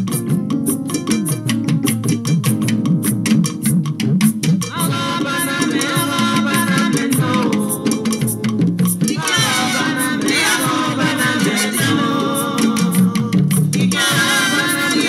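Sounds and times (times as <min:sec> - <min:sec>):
bass line: 0:00.0 - 0:15.0
percussion beat: 0:00.0 - 0:15.0
person singing: 0:04.8 - 0:15.0.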